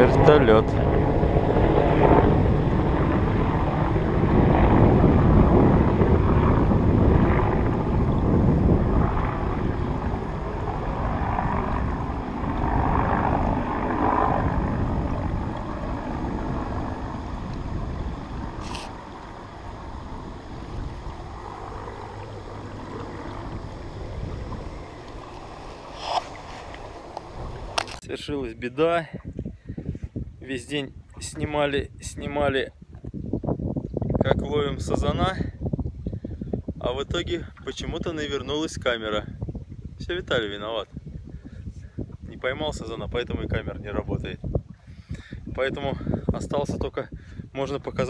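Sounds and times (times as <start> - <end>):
helicopter flying over: 0.0 - 28.0.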